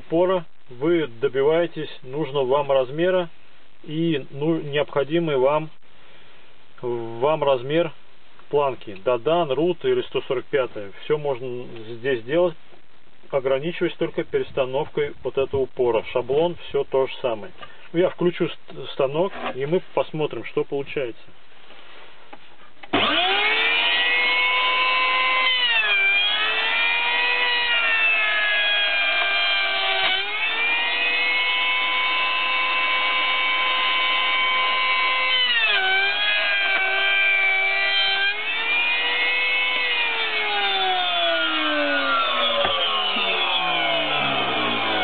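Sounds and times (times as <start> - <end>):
wood router whining: 22.8 - 45.0
router winding down: 22.9 - 45.0.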